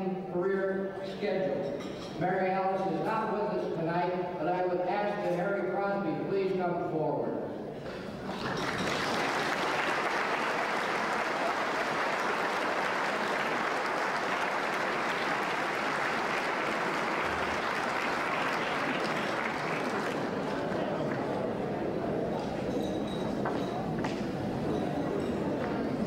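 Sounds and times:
audience applauding: 8.2s - 21.5s.

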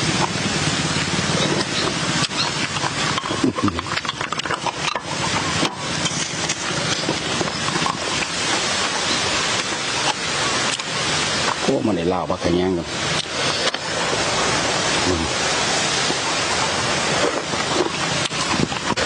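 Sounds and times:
crunchy chewing: 1.3s - 11.6s, 15.9s - 19.0s
metal pick scraping shell: 1.4s - 11.6s.

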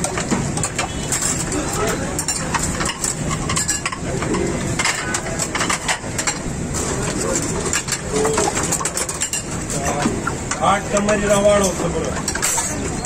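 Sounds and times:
hubbub of voices: 0.0s - 13.0s.

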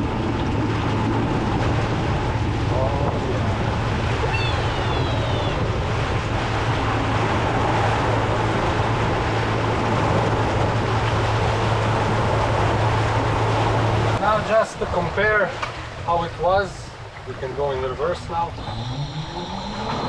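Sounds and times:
electric boat motor humming: 0.0s - 14.2s, 18.2s - 20.0s
wind on microphone: 0.0s - 16.1s, 18.1s - 20.0s
churning wake water: 0.0s - 20.0s.

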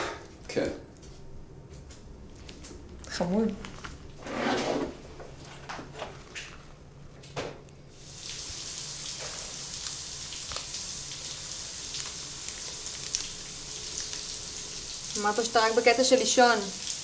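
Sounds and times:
shower spray hissing: 7.9s - 17.0s.

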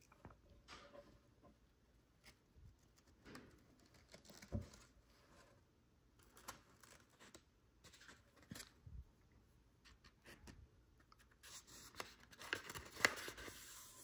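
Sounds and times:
paper rustling and crinkling: 11.4s - 14.0s.

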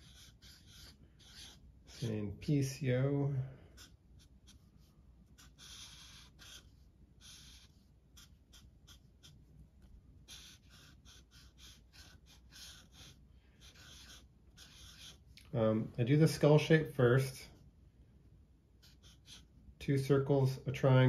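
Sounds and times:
marker scratching on paper: 0.0s - 15.4s, 18.8s - 19.6s.

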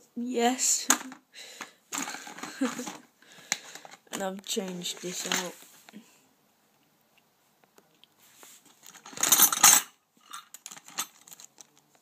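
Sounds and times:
metal tools clattering in drawer: 1.9s - 3.0s, 4.9s - 5.6s, 8.9s - 11.6s.

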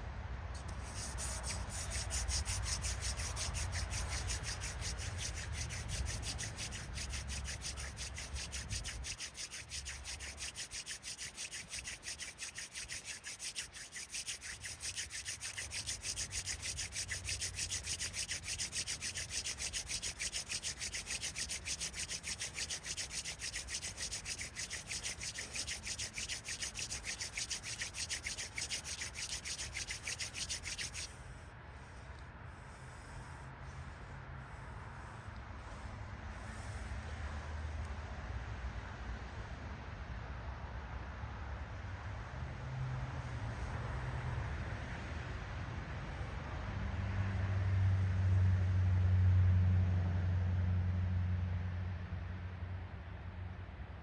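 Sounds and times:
spindle rasping on wooden board: 0.7s - 31.1s.

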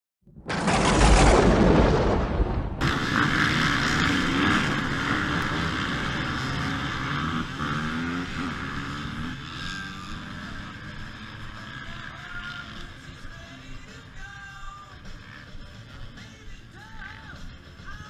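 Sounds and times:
deep boom: 0.3s - 5.3s
dirt bike engines revving: 2.8s - 18.0s.

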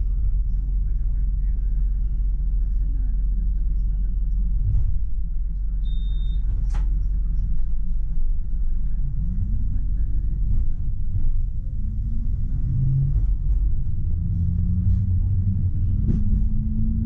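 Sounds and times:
tram rumbling on track: 0.0s - 17.0s
short high beep: 5.8s - 6.4s.

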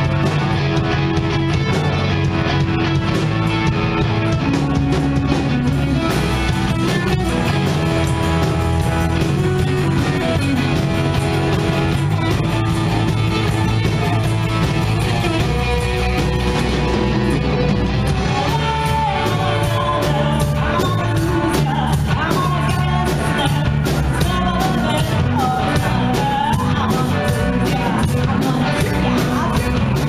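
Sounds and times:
live rock band playing: 0.0s - 30.0s.

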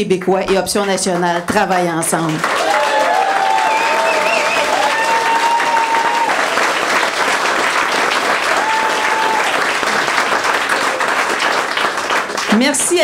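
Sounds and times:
audience applauding: 1.0s - 13.0s
crowd calling out: 2.6s - 6.6s, 8.4s - 10.1s.

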